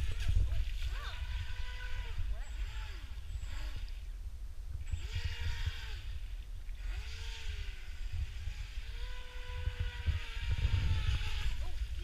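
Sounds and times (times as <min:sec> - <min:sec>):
electric motor whining: 0:01.1 - 0:03.9, 0:06.8 - 0:11.9.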